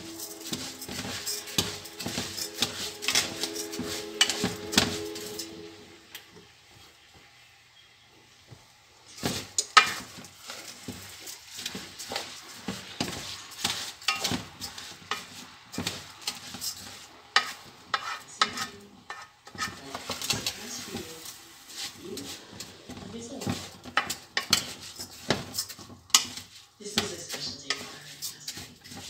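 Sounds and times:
wooden spoon scraping pot: 0:00.0 - 0:05.8, 0:09.1 - 0:29.0
light sizzle: 0:00.0 - 0:29.0.

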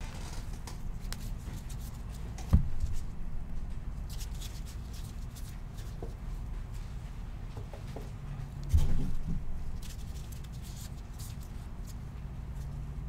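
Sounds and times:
steady low hum: 0:00.0 - 0:13.0
cards rustling and ticking: 0:09.8 - 0:12.0.

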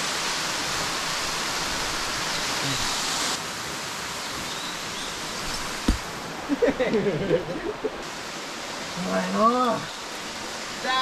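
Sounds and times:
waterfall rushing: 0:00.0 - 0:11.0
sharp knock: 0:05.8 - 0:06.1.

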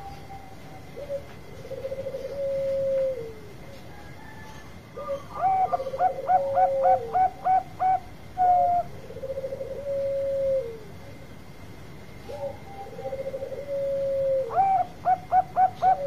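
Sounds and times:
dove cooing: 0:00.0 - 0:11.2, 0:12.2 - 0:16.0
dove purring: 0:01.0 - 0:03.5, 0:05.0 - 0:11.0, 0:12.2 - 0:16.0.

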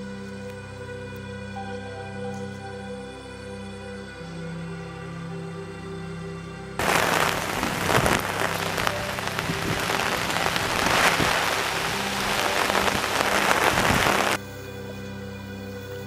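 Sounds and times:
faint background music: 0:00.0 - 0:16.0
heavy rain on trees: 0:06.8 - 0:14.4.

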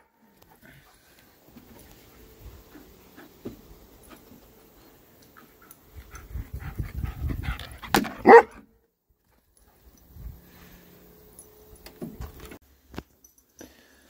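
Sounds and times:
dog panting: 0:05.4 - 0:08.4
dog barking: 0:08.2 - 0:08.6.

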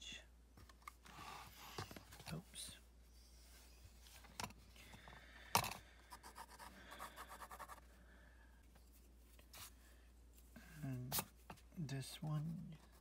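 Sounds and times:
pencil scratching on paper: 0:06.1 - 0:07.8, 0:12.7 - 0:13.0.

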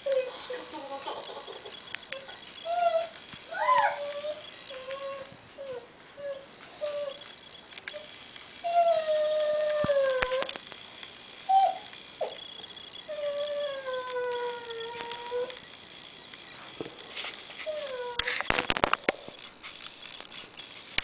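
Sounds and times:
dog whining: 0:02.0 - 0:10.6, 0:11.2 - 0:15.6, 0:16.6 - 0:18.5
dog howling: 0:02.1 - 0:07.2, 0:07.9 - 0:10.6, 0:13.0 - 0:15.6
dog yelping: 0:02.1 - 0:07.2, 0:11.3 - 0:12.4.

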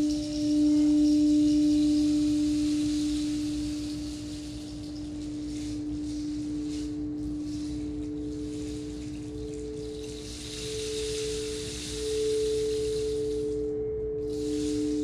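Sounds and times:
higher singing bowl tone: 0:00.0 - 0:15.0
singing bowl low hum: 0:00.0 - 0:15.0.

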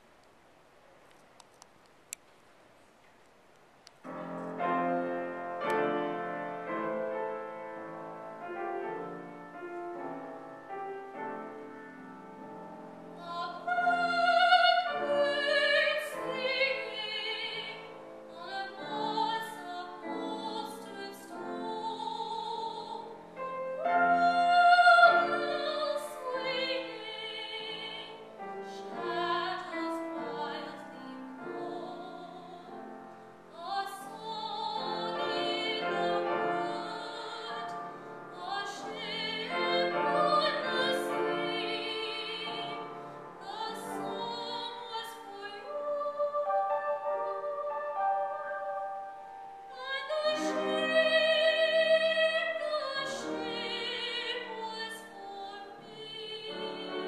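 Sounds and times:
grand piano: 0:03.9 - 0:57.0
woman singing with vibrato: 0:13.2 - 0:23.2, 0:23.8 - 0:32.8, 0:33.5 - 0:48.8, 0:49.7 - 0:57.0.

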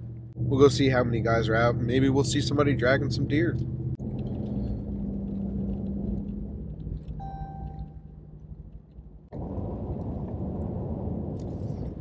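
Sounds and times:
engine hum: 0:00.0 - 0:12.0
tyre road noise: 0:00.0 - 0:12.0
short high tone: 0:07.2 - 0:08.1.

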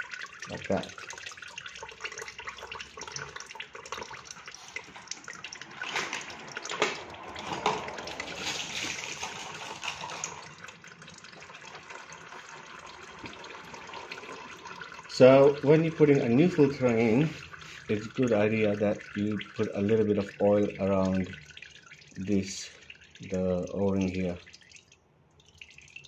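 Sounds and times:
oil trickling into a pan: 0:00.0 - 0:26.0.

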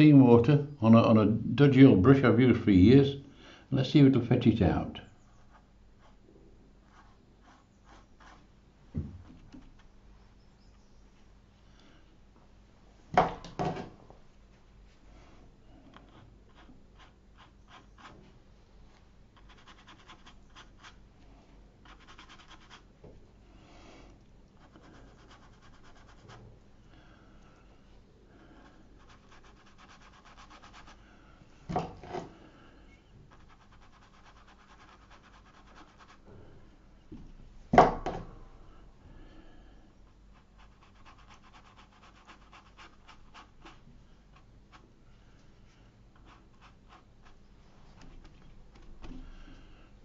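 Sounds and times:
brush scrubbing on damp paper: 0:28.6 - 0:31.0, 0:33.3 - 0:36.2, 0:40.3 - 0:44.8, 0:46.2 - 0:47.5.

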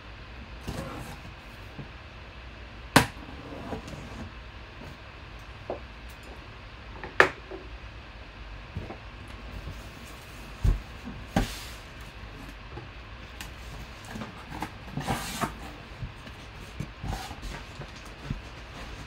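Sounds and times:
cardboard scraping and rustling: 0:00.6 - 0:01.9, 0:13.4 - 0:19.0.

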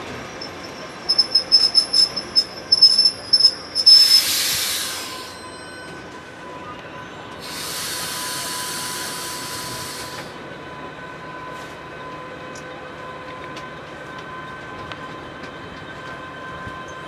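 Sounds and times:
train rolling: 0:00.0 - 0:17.0
wheel squeal: 0:00.2 - 0:06.0
loud hiss: 0:01.6 - 0:05.3, 0:07.4 - 0:10.3.

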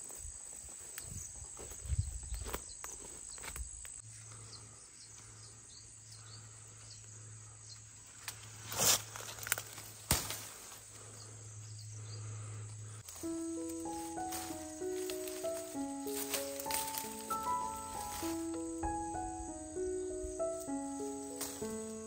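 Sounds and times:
insects buzzing: 0:00.0 - 0:22.0
music with plucked notes: 0:13.1 - 0:22.0.

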